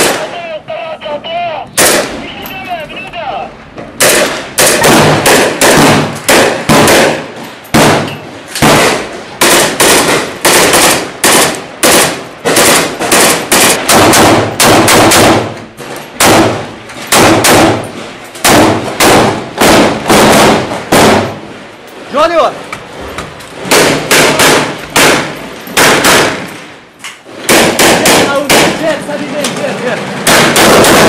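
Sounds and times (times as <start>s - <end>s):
assault rifle firing indoors: 4.0s - 15.6s, 16.2s - 21.4s, 23.6s - 26.7s, 27.3s - 28.8s, 30.2s - 31.0s.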